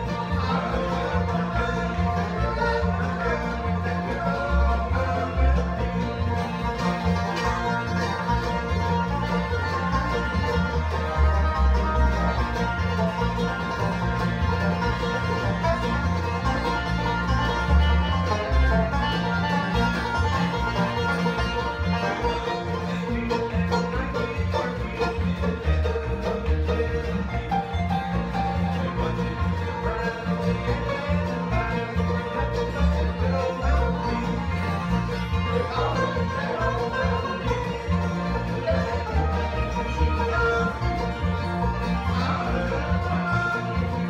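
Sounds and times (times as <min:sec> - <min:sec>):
acoustic guitar: 0:00.0 - 0:44.0
banjo: 0:00.0 - 0:44.0
mandolin: 0:00.0 - 0:44.0
upright bass: 0:00.0 - 0:44.0.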